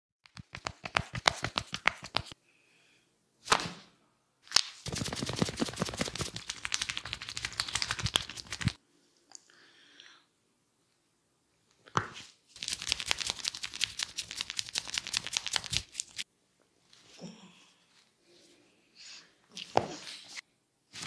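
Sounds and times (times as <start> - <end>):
hair snapping and crackling: 4.5 - 8.8, 12.6 - 16.2.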